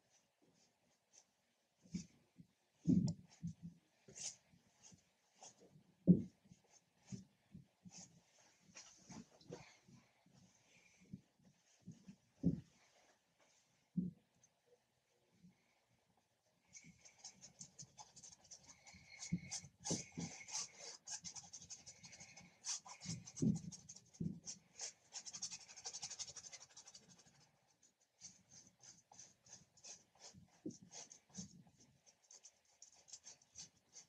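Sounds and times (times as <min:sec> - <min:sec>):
paintbrush scrubbing on canvas: 0:16.8 - 0:34.0.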